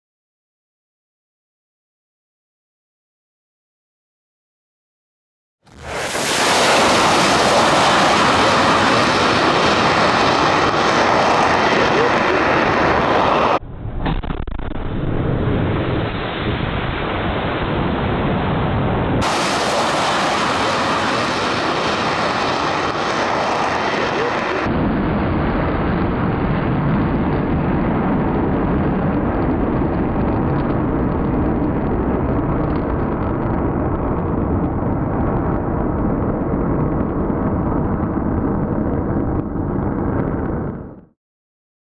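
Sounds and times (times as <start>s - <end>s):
loud jet roar: 5.7s - 32.5s.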